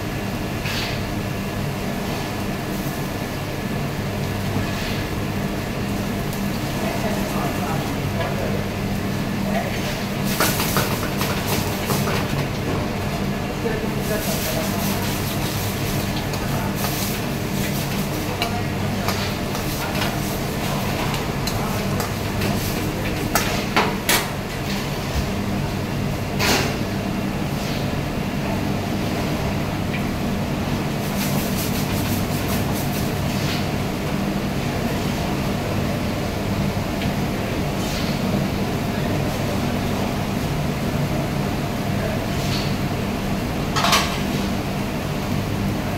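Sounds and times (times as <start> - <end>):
gas burners and extraction hum: 0.0 - 45.9.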